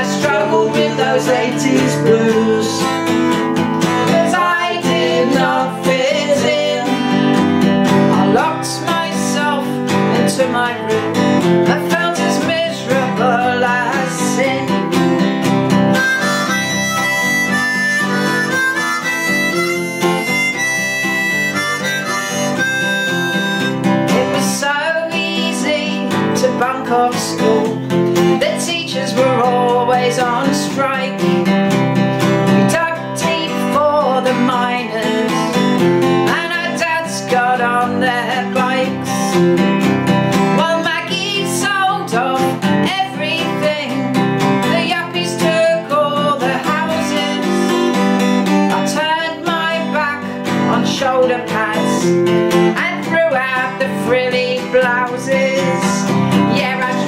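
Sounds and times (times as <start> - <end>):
strummed acoustic guitar: 0.0 - 57.0
woman singing blues: 0.0 - 57.0
harmonica solo: 15.7 - 24.2.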